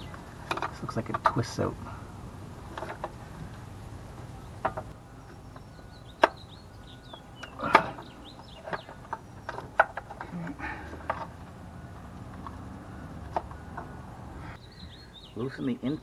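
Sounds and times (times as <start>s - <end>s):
clicks and knocks of plastic and metal parts: 0.4s - 1.4s, 2.7s - 3.2s, 7.1s - 11.4s, 12.2s - 14.0s
faint bird chirps: 4.4s - 9.6s, 12.8s - 16.0s.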